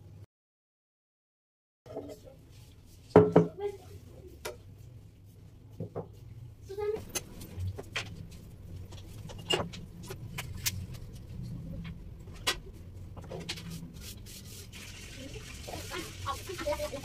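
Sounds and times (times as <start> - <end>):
cloth wiping shelves: 13.5 - 17.0.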